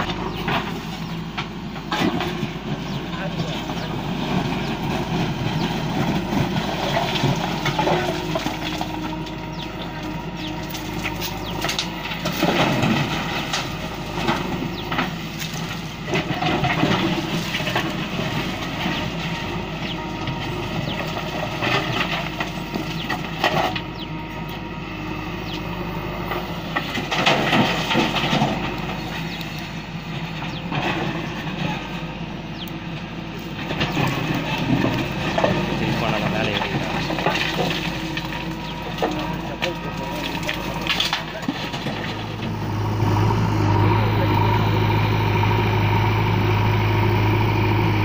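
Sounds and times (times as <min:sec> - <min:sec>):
diesel engine running: 0:00.0 - 0:48.0
rocks clattering into steel bed: 0:33.6 - 0:42.2.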